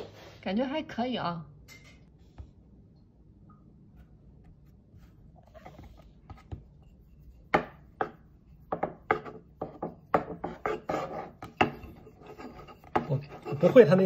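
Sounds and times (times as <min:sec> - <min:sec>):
faint handling sounds: 0:03.8 - 0:08.7
rolling pin on wooden board: 0:05.4 - 0:14.0.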